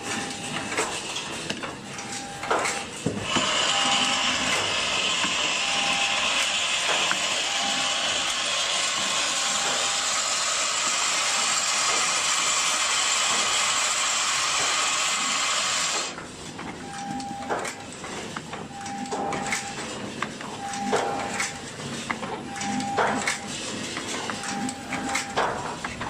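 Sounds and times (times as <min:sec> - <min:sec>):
mechanism clicks and clacks: 0:00.0 - 0:05.4, 0:06.3 - 0:10.0, 0:15.9 - 0:26.0
short machine tone: 0:03.5 - 0:10.4.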